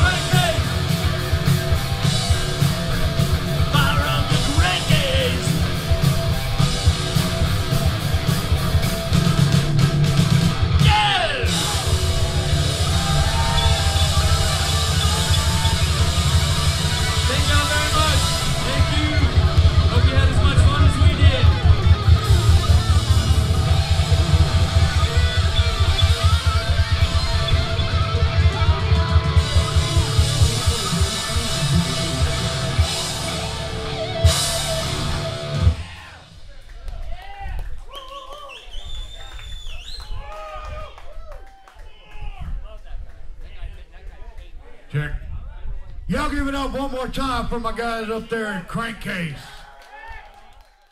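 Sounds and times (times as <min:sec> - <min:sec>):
live rock band playing: 0:00.0 - 0:36.2.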